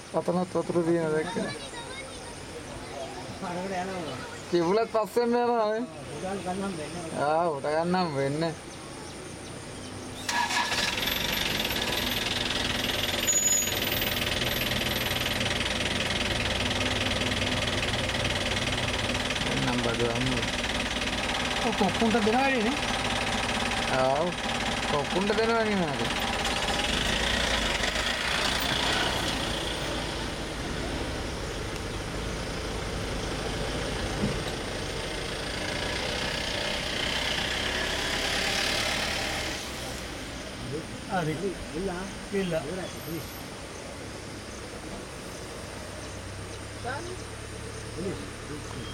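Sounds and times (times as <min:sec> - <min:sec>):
vehicle engine starting and idling: 0:09.7 - 0:48.9
rushing hiss: 0:10.2 - 0:43.8.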